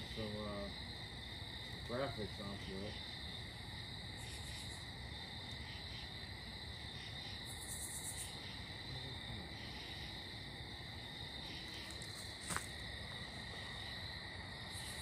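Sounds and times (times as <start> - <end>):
crickets trilling: 0.0 - 15.0
high-pitched pulsing insect buzz: 3.9 - 10.3, 14.6 - 15.0.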